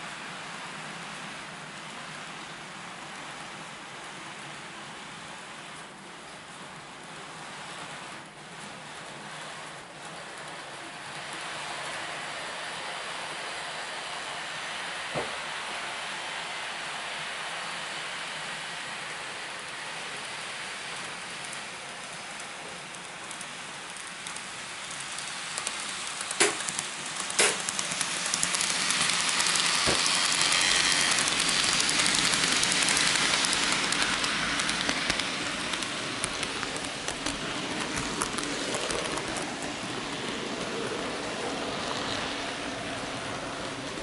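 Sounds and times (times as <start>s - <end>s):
second model train passing: 0.0s - 44.0s
model train wheels rattling on rail: 20.9s - 44.0s
sharp clicks: 25.6s - 29.5s.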